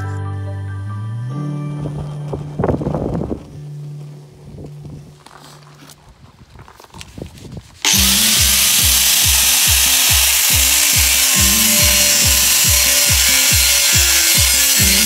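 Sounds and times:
music with low beat: 0.0s - 5.2s, 7.9s - 15.0s
angle grinder cutting steel: 7.8s - 15.0s.

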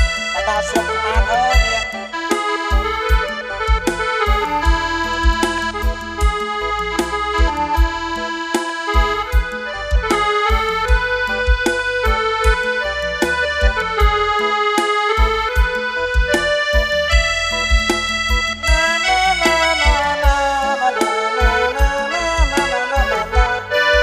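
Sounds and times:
accordion-like melody: 0.0s - 24.0s
kick drum beat: 2.7s - 6.4s.

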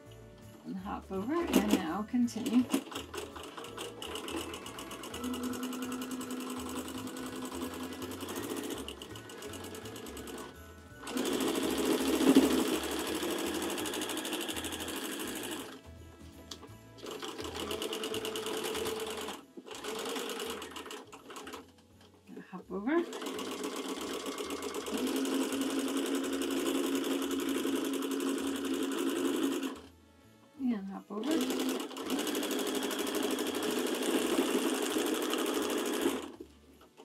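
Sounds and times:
sewing machine stitching: 0.8s - 15.8s, 17.0s - 22.1s, 22.8s - 29.9s, 31.2s - 37.0s.

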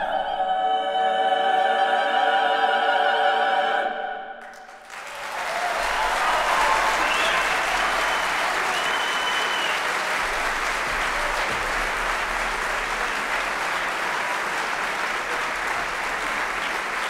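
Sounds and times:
audience applauding: 4.4s - 17.0s.

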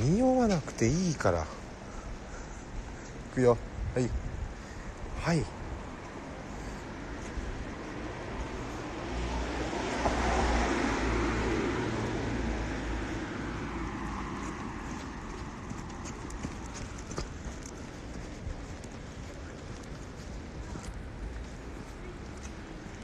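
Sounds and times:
vehicle passing: 5.6s - 23.0s.

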